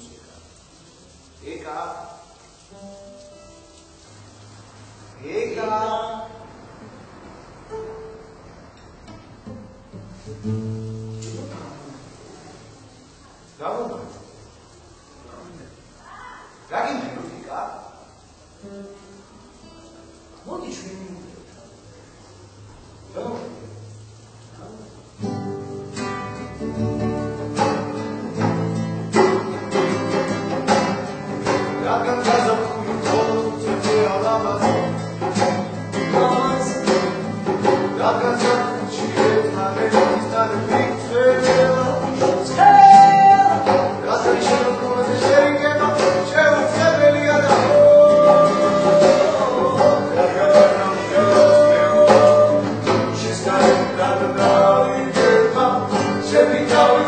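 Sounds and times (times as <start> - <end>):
classical guitar strummed: 2.5 - 4.8, 7.6 - 12.6, 18.6 - 20.8, 25.0 - 57.0
man singing: 31.4 - 57.0.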